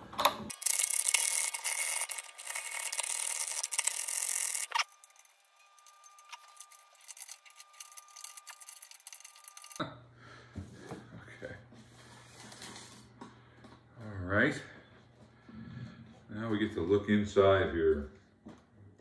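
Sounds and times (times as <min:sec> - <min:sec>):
guitar tuning pegs turning: 0:00.5 - 0:09.8.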